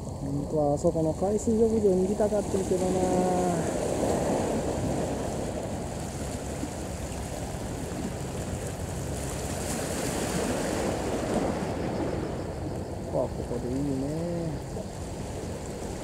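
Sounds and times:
sea waves rushing: 0:00.0 - 0:16.0
wind on microphone: 0:00.0 - 0:16.0.

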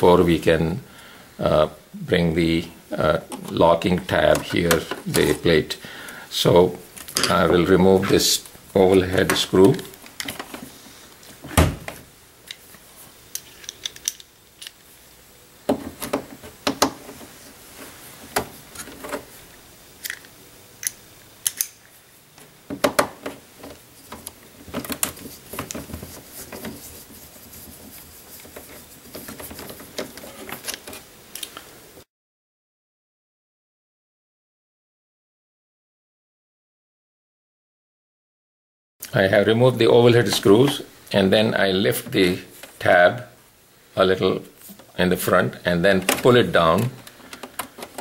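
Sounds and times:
screw tool clicking: 0:20.0 - 0:21.8.

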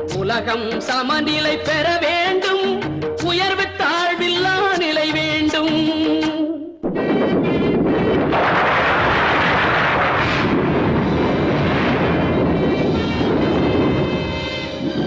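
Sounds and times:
firecrackers crackling: 0:06.8 - 0:14.3.

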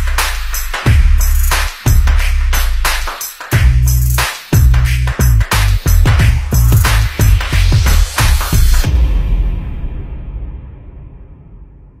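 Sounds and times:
bass-heavy electronic music: 0:00.0 - 0:09.0.

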